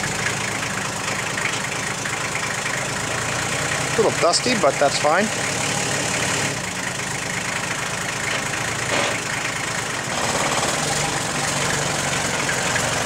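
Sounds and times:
diesel engine running at low revs: 0.0 - 13.0.

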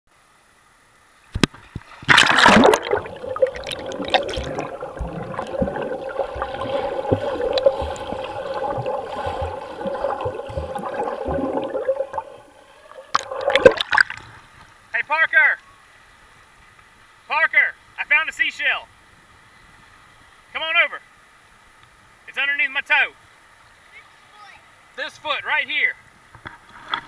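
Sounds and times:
loud splash: 2.0 - 14.2
muffled underwater gurgling: 2.1 - 14.0.

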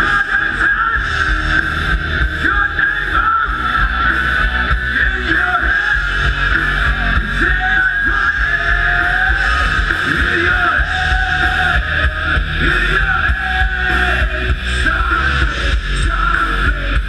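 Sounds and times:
electric guitar: 0.0 - 17.0
live rock band: 0.0 - 17.0.

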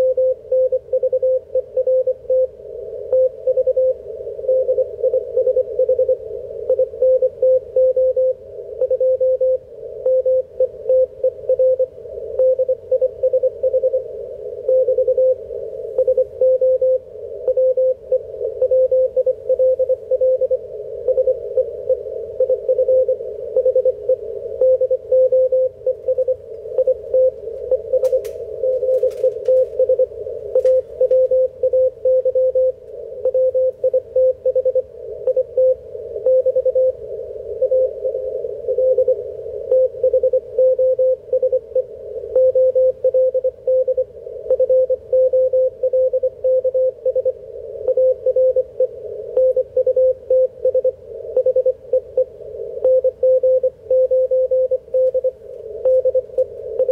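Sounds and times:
morse code tone: 16.0 - 56.9.

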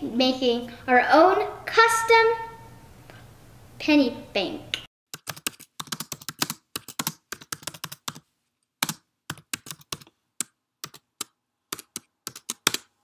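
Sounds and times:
keyboard keys clicking: 5.2 - 8.2, 8.8 - 12.9.

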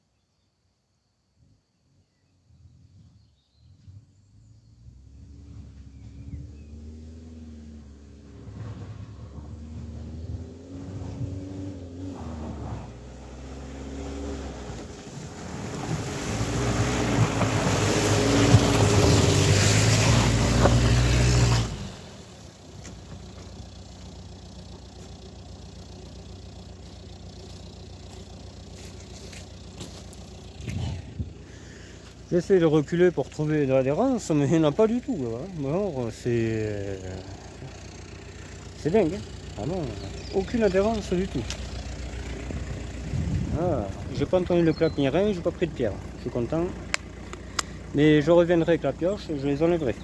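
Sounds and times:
car engine revving: 4.1 - 50.0
tyres spinning in mud: 14.6 - 50.0.

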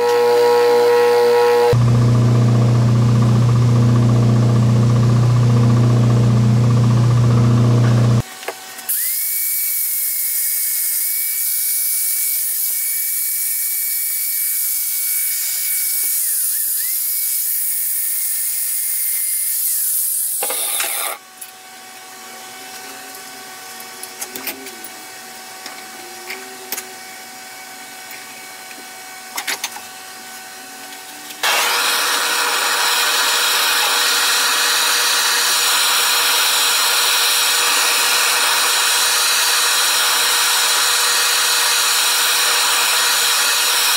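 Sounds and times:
angle grinder grinding steel: 0.0 - 1.8, 8.9 - 21.2, 31.3 - 43.9
gas torch hissing: 31.4 - 43.9.

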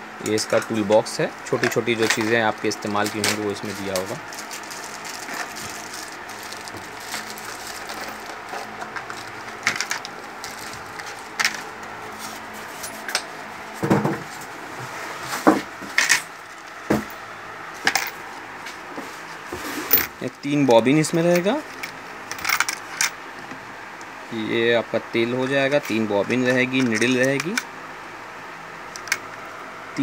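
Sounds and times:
plastic packaging crinkling: 1.7 - 11.7.

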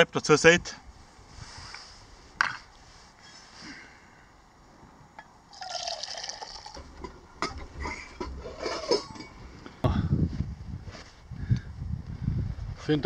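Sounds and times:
low rumble of handling noise: 4.4 - 12.8
soup pouring into metal cup: 5.5 - 7.4.

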